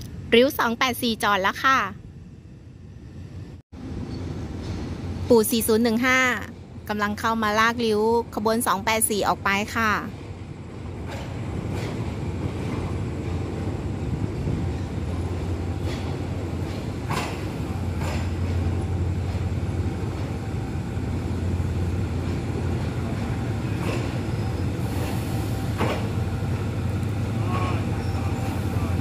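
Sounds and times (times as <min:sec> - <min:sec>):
railway coaches rolling: 0:00.0 - 0:29.0
locomotive engine droning: 0:09.4 - 0:29.0.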